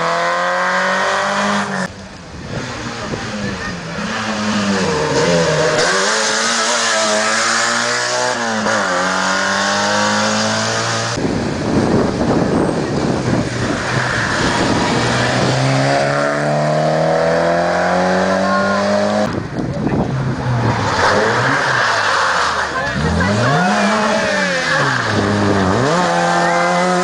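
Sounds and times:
rally car engines revving: 0:00.0 - 0:27.0
rough engine close by: 0:00.6 - 0:27.0.

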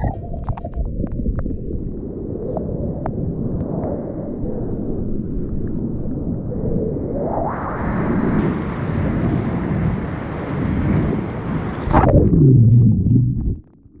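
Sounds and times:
muffled underwater rumble: 0:00.0 - 0:08.6, 0:11.3 - 0:14.0
wind buffeting microphone: 0:00.0 - 0:13.6
churning surf rushing: 0:07.2 - 0:12.7.

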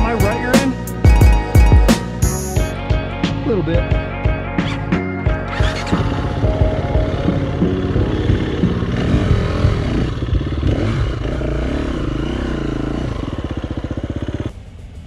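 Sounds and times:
dirt bike engine revving: 0:04.6 - 0:15.0.

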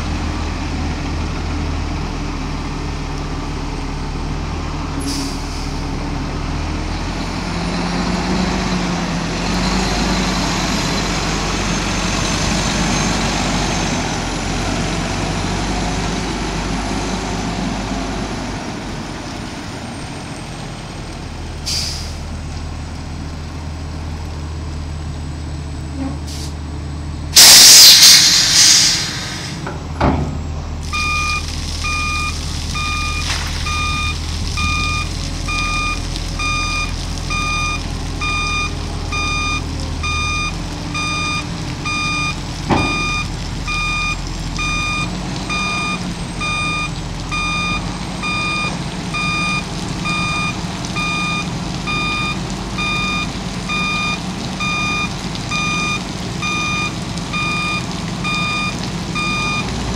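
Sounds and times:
air hissing burst: 0:27.4 - 0:29.7
warning alarm beeping: 0:30.9 - 0:59.7.

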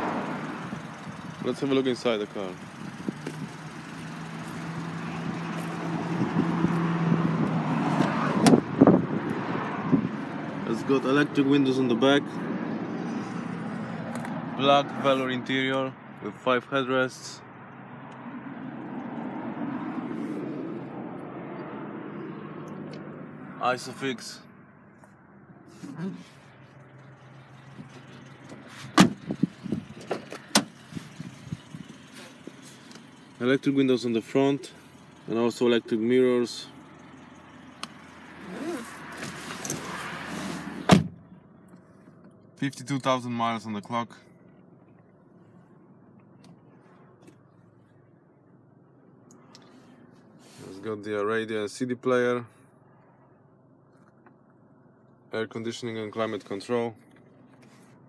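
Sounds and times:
vehicle engine hum: 0:00.0 - 0:58.0
car door clunks: 0:08.0 - 0:08.9, 0:28.5 - 0:30.8, 0:40.8 - 0:41.2
car door clicks and knocks: 0:28.9 - 0:29.4.

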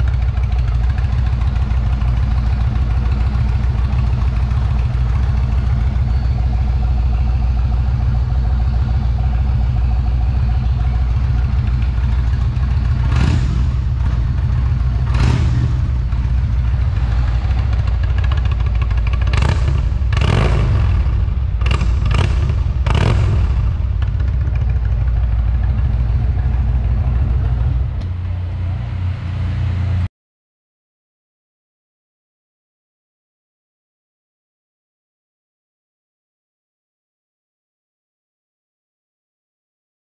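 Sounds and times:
motorcycle throttle blips: 0:00.0 - 0:28.4
motorcycle engine idling: 0:00.0 - 0:30.0.

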